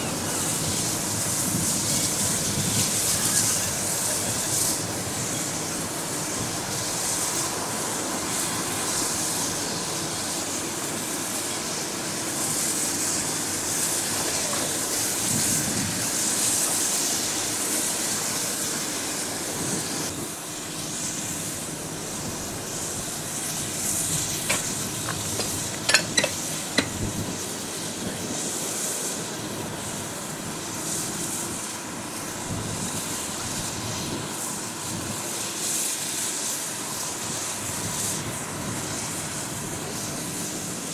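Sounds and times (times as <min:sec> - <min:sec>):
steam hissing: 0:00.0 - 0:40.9
sharp metallic clanks: 0:24.4 - 0:27.1.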